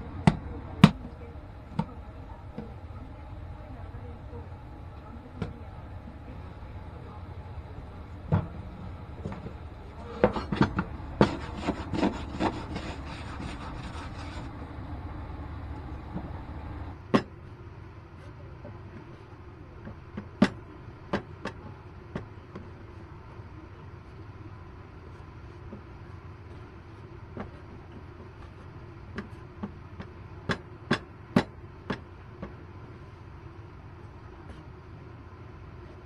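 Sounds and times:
low steady hum: 0:00.0 - 0:36.0
dough rubbing on wooden board: 0:09.2 - 0:15.0.

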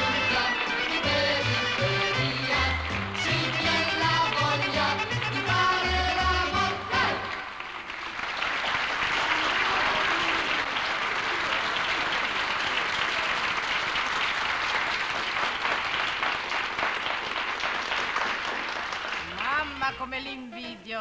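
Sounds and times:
dance music: 0:00.0 - 0:07.5
audience applause: 0:06.9 - 0:19.8.

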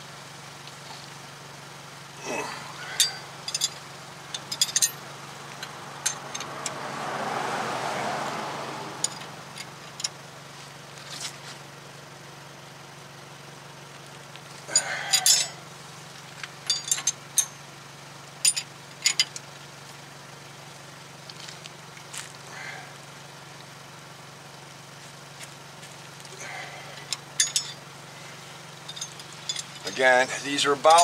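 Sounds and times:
steady low hum: 0:00.0 - 0:07.0, 0:08.6 - 0:31.0
wrench clinking against bolts: 0:02.8 - 0:06.8, 0:09.0 - 0:10.2, 0:14.7 - 0:15.6, 0:16.5 - 0:17.7, 0:18.4 - 0:19.5, 0:26.8 - 0:27.9, 0:28.8 - 0:31.0.

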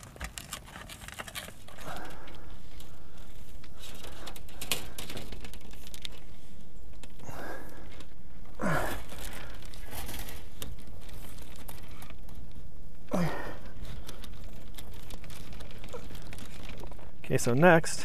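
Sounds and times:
cables rustling and scraping: 0:00.0 - 0:18.0
person grunting: 0:13.1 - 0:13.6.

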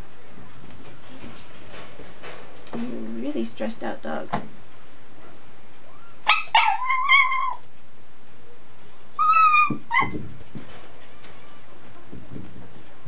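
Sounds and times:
dog whining: 0:05.9 - 0:07.6, 0:09.2 - 0:10.2.

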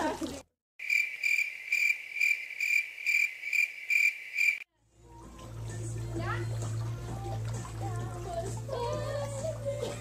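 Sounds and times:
cricket chirping: 0:00.8 - 0:04.7.

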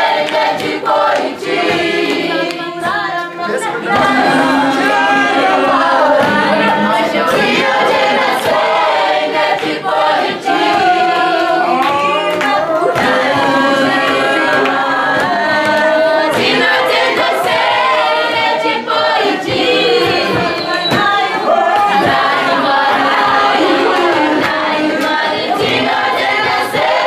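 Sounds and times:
hand claps: 0:00.0 - 0:05.1, 0:05.7 - 0:18.8, 0:19.4 - 0:27.0
children singing together: 0:00.0 - 0:27.0.

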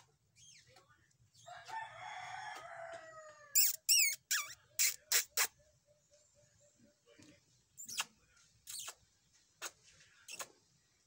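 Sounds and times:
rooster crowing: 0:01.5 - 0:03.6.

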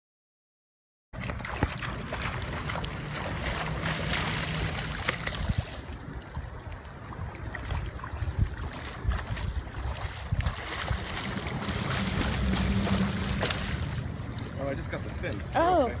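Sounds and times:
fish thrashing and splashing: 0:01.2 - 0:06.0, 0:07.5 - 0:14.5
wind noise on microphone: 0:01.2 - 0:14.3
water sloshing against rocks: 0:01.2 - 0:16.0.

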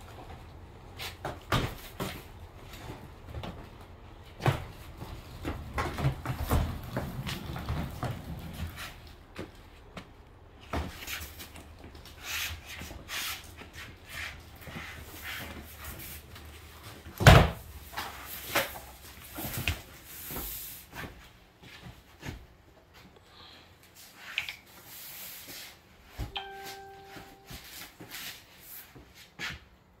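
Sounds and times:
ringing tone: 0:26.3 - 0:27.8.

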